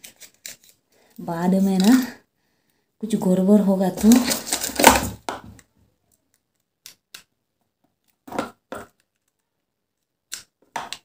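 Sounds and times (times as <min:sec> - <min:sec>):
packaging rustling and scraping: 0:00.0 - 0:00.8, 0:03.9 - 0:05.2.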